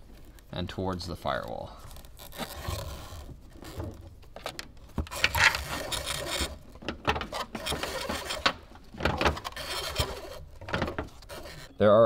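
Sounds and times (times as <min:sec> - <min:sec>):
wiring harness scraping and clicking: 0:00.0 - 0:11.8.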